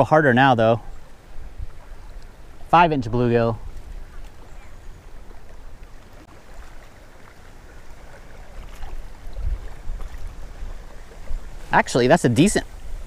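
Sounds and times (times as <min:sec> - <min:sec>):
faint lake water: 0:00.0 - 0:13.0
wind buffeting microphone: 0:00.8 - 0:05.8, 0:08.4 - 0:13.0.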